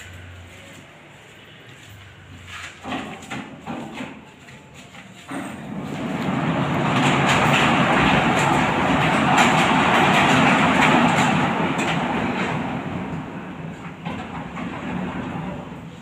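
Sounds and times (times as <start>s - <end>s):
garage door rolling shut: 2.4s - 4.4s, 5.2s - 16.0s.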